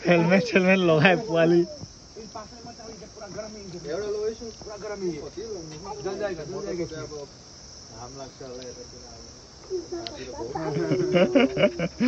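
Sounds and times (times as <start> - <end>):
soft voices: 0.0 - 2.3, 8.6 - 12.0
night insects chirring: 0.0 - 12.0.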